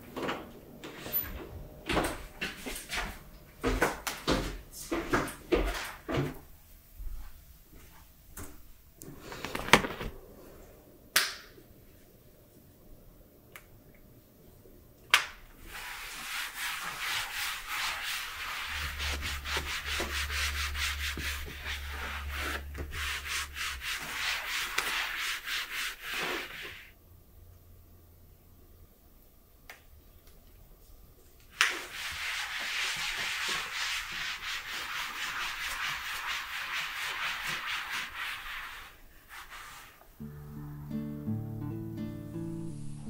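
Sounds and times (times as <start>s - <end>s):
cloth scrubbing leather: 15.6s - 26.9s.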